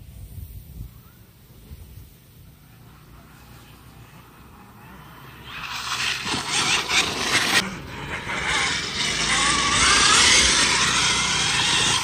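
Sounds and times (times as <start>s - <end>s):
electric motor whine: 3.2s - 12.0s.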